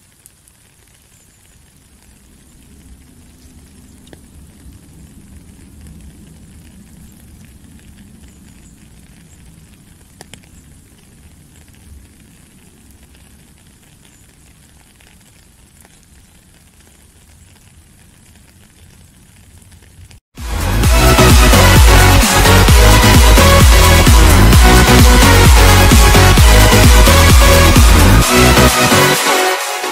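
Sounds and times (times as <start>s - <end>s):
single raindrops: 0.0s - 20.2s
steady light rain: 0.0s - 29.9s.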